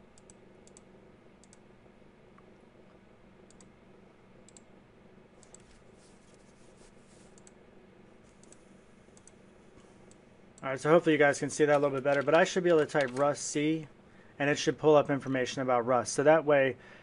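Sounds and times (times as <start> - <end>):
low room hum: 0.0 - 17.0
computer mouse clicks: 0.2 - 1.6, 3.5 - 3.7, 4.5 - 4.7, 5.4 - 5.8, 7.3 - 7.6, 8.3 - 8.6, 9.2 - 9.4.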